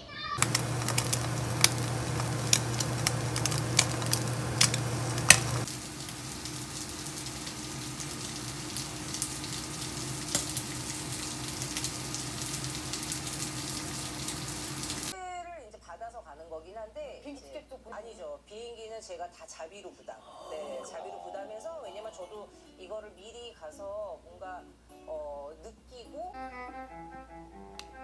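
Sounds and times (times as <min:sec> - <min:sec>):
low steady hum: 0:00.4 - 0:09.6
egg sizzling in a pan: 0:00.4 - 0:15.2.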